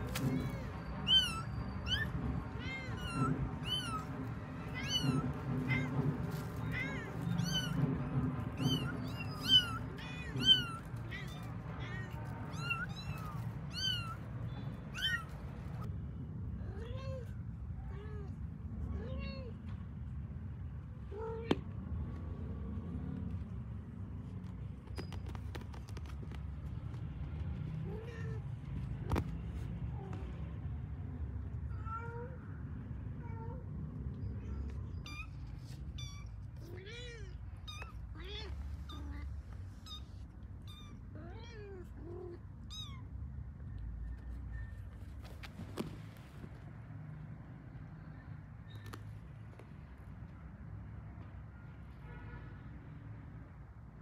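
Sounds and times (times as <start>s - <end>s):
kittens mewing: 0.0s - 15.9s.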